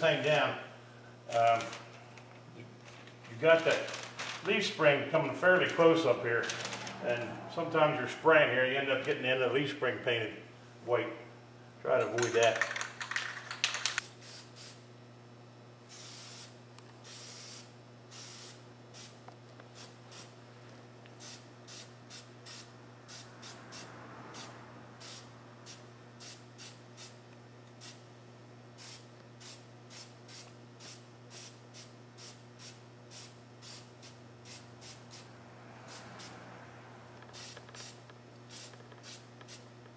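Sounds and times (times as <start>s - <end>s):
aerosol spray can hissing: 15.9s - 19.2s, 37.3s - 39.6s.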